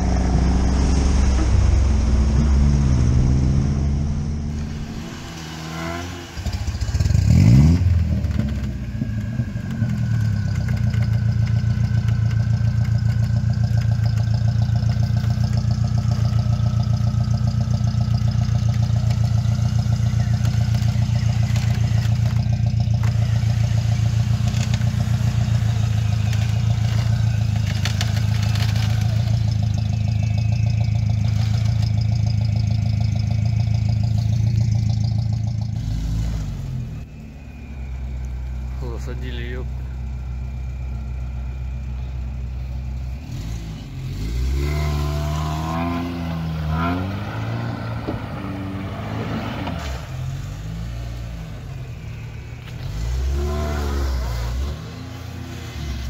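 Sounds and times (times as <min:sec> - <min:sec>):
car churning through mud: 0:00.0 - 0:41.0, 0:42.9 - 0:56.0
car engine revving: 0:00.0 - 0:56.0.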